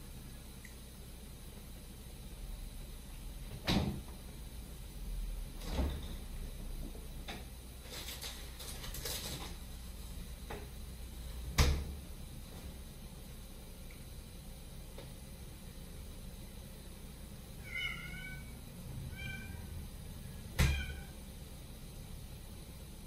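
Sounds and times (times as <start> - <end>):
freezer door shutting: 5.6 - 6.2
clatter of items moved: 7.8 - 9.6
freezer door thumps and clicks: 11.5 - 12.0.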